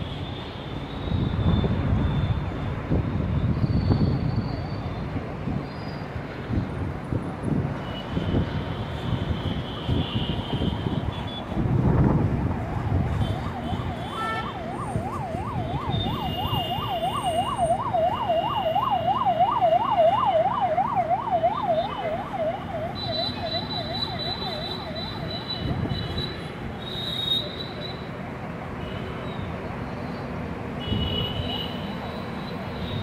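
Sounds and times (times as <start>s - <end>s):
road traffic noise: 0.0s - 33.0s
emergency siren yelping: 12.2s - 25.9s.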